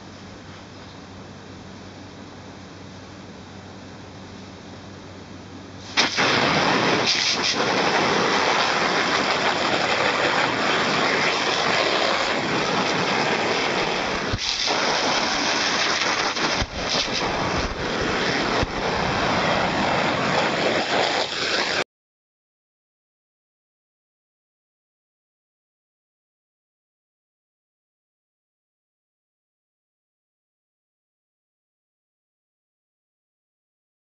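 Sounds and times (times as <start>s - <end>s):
hose water spraying on canvas: 5.8s - 21.8s.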